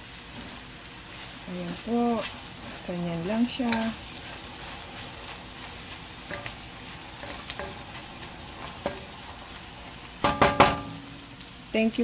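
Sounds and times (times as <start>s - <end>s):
food sizzling in a metal pan: 0.0s - 12.0s
metal knocks on a pan: 7.2s - 7.8s, 8.8s - 9.2s, 10.2s - 11.1s.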